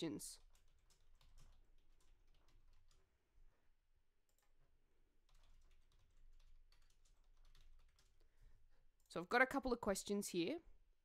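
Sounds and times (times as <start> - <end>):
typing on computer keyboard: 0.0 - 3.1, 4.3 - 9.1.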